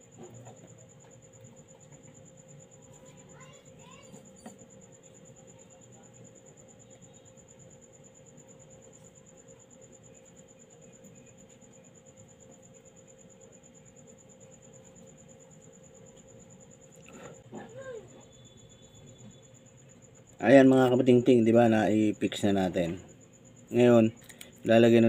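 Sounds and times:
faint rising chirps: 15.0s - 21.0s.

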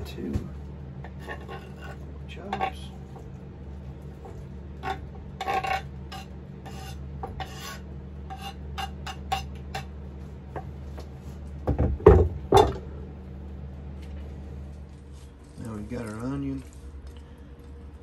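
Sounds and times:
knife scraping cutting board: 1.0s - 3.2s, 4.2s - 9.9s
board knocking on countertop: 11.6s - 12.8s.

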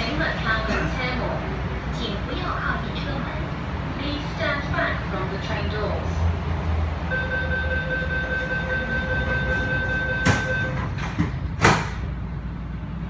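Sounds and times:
high door warning tone: 7.1s - 11.2s
sliding train doors thudding shut: 9.5s - 12.2s.

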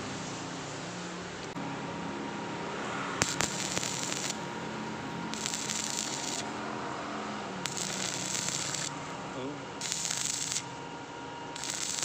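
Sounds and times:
steady low hum: 1.6s - 12.0s
welding arc crackling: 3.2s - 4.4s, 5.3s - 6.6s, 7.6s - 8.9s, 9.8s - 10.8s, 11.6s - 12.0s.

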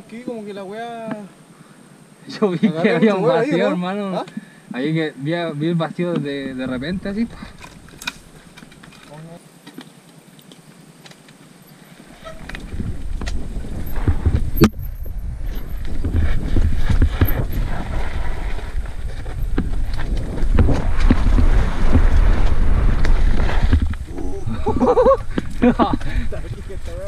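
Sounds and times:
bike knocking and rattling: 6.6s - 24.2s
tyres rolling over dirt: 10.6s - 27.0s
wind buffeting microphone: 12.2s - 27.0s.

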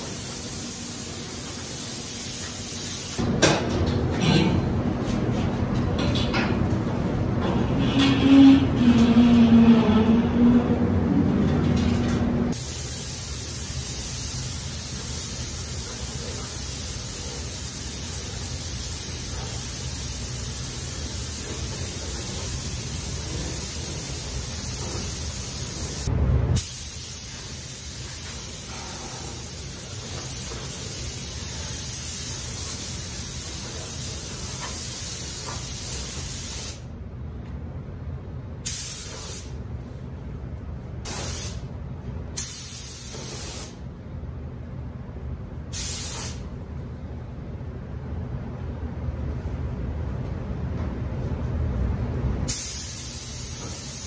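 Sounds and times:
paint spray gun hissing: 0.0s - 3.2s, 12.5s - 36.8s, 42.4s - 43.8s, 52.5s - 54.0s.

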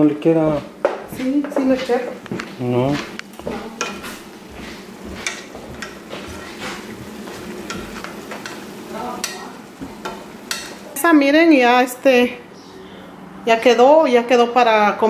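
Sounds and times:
meat sizzling: 0.0s - 12.3s
wooden spatula scraping a pan: 1.2s - 11.0s.

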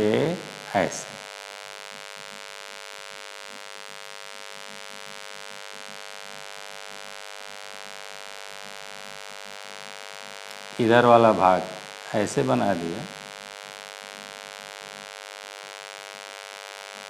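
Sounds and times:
electrical buzz: 0.0s - 8.0s.

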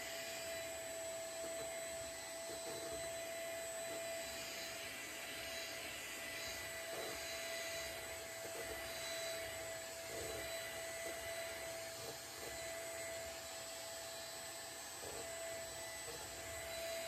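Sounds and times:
vacuum cleaner running: 0.0s - 17.0s.

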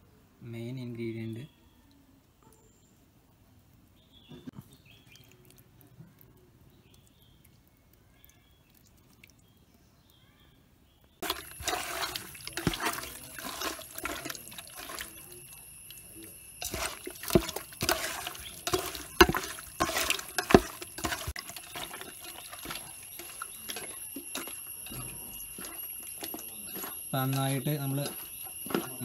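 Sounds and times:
wet squelching and sloshing: 11.2s - 29.0s.

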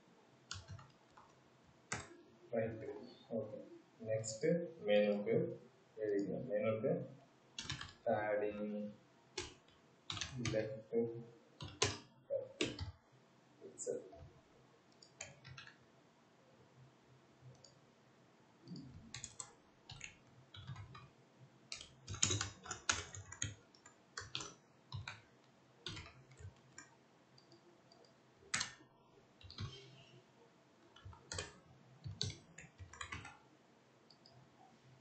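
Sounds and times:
keyboard typing: 0.5s - 2.2s, 7.6s - 8.0s, 9.4s - 10.8s, 11.6s - 13.0s, 14.9s - 15.8s, 18.7s - 21.1s, 21.7s - 28.8s, 29.4s - 30.0s, 30.9s - 33.4s.

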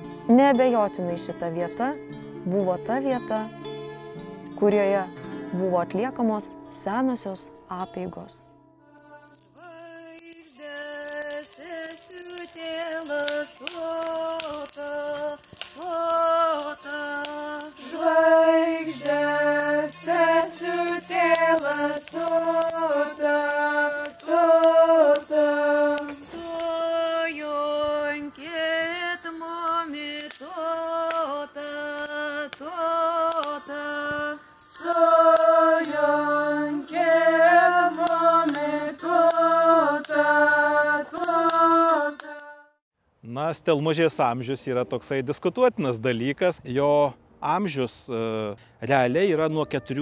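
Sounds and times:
woman singing slow melody: 8.9s - 42.6s.

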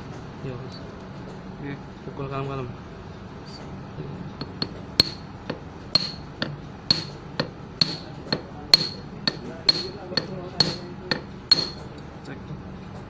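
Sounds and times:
hammer tapping steel bar: 4.4s - 11.9s.

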